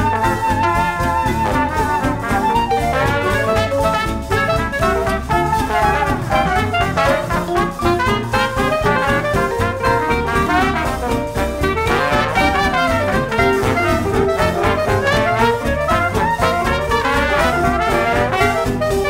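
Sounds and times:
jazz music with brass horns: 0.0 - 19.0.

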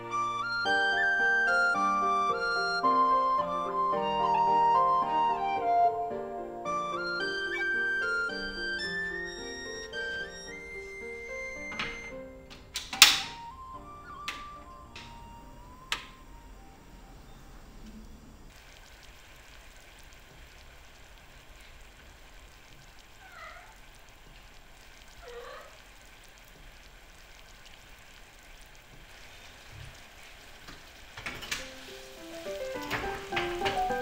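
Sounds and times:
short falling-rising calls: 0.0 - 12.5, 13.2 - 18.3
soft plucked music: 0.0 - 12.5, 31.6 - 34.0
syrup bubbling in saucepan: 18.0 - 34.0.

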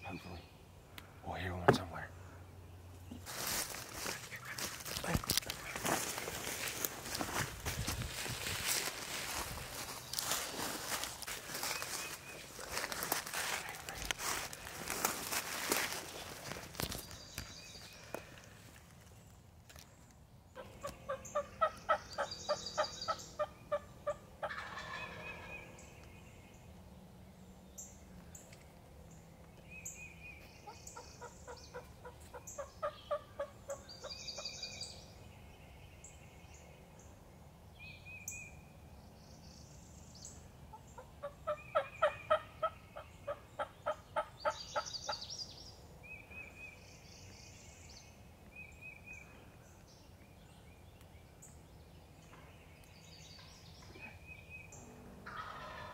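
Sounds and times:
small songbirds chirping: 0.0 - 55.7
wild turkey calling: 3.2 - 7.2, 20.6 - 26.1, 29.8 - 34.9, 40.7 - 45.5, 53.4 - 55.9.

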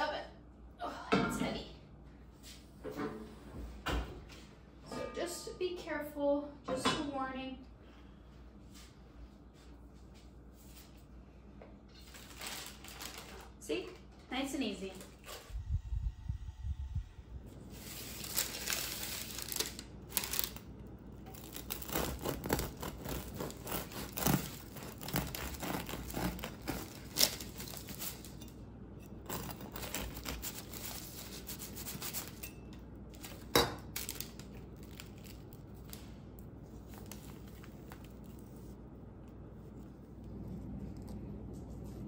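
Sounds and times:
parchment paper crinkling: 12.0 - 14.0, 17.8 - 28.4, 29.3 - 32.4, 33.1 - 40.1.

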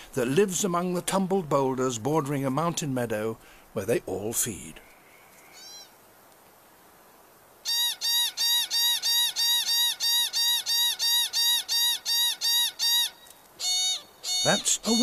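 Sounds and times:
pika calling: 4.7 - 6.0, 7.6 - 15.0.

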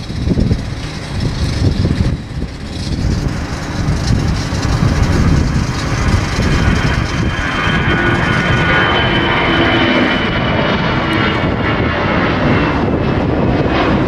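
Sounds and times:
jet engines rumbling at takeoff: 0.0 - 14.0.

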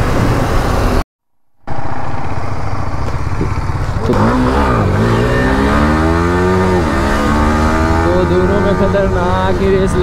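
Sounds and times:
motorcycle engine accelerating: 1.5 - 10.0.

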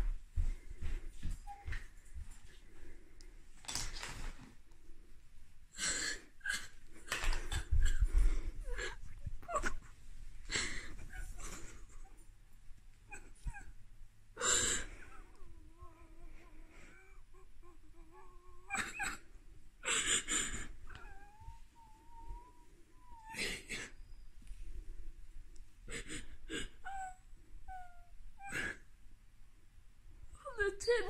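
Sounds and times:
boy sobbing: 5.8 - 12.2, 14.4 - 24.0, 25.9 - 28.9
faint whimpers: 5.8 - 12.3, 13.1 - 13.8, 14.4 - 24.2, 25.8 - 28.9.

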